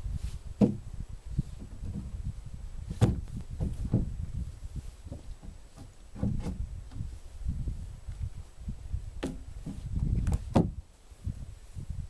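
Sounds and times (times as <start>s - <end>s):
wooden logs knocking: 0.6s - 0.9s, 3.0s - 4.1s, 5.0s - 7.1s, 9.2s - 10.8s.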